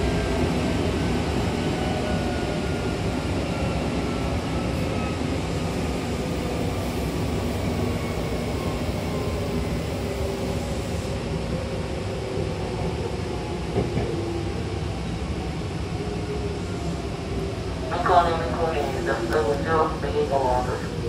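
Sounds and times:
train wheels rumbling on rails: 0.0 - 14.6.

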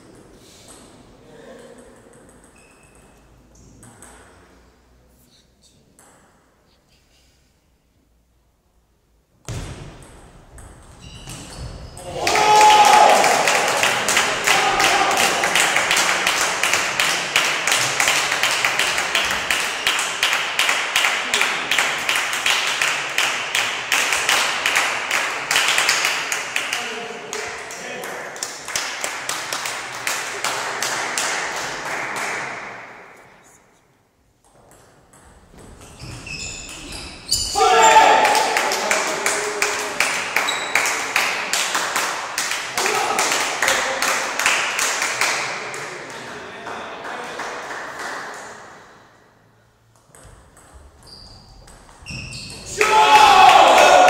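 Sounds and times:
spectators clapping in unison: 12.1 - 32.8, 38.0 - 48.8, 52.7 - 54.0.

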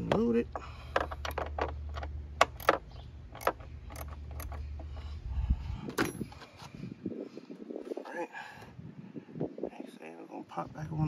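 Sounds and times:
metallic clicks and knocks: 0.0 - 5.1.

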